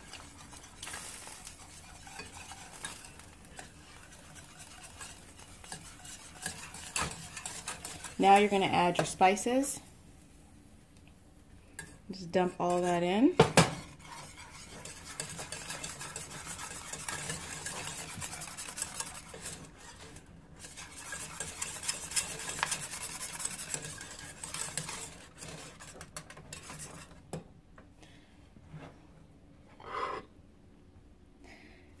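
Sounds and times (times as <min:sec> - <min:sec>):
wire whisk scraping saucepan: 0:00.0 - 0:09.7, 0:11.8 - 0:13.2, 0:13.8 - 0:27.4.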